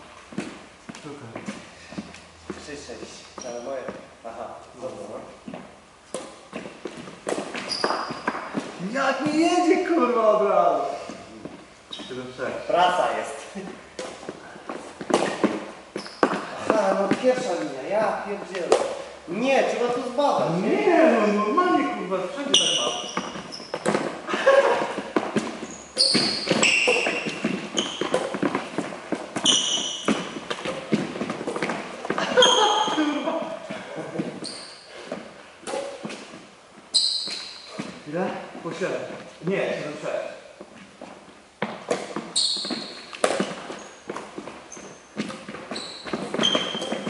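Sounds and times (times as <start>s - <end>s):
shoes squeaking on court: 0.0s - 10.2s, 10.9s - 20.5s, 21.2s - 39.3s, 40.4s - 47.0s
rackets hitting shuttlecock: 6.1s - 8.8s, 24.9s - 32.2s, 41.7s - 44.4s
footfalls on wooden floor: 23.1s - 34.4s.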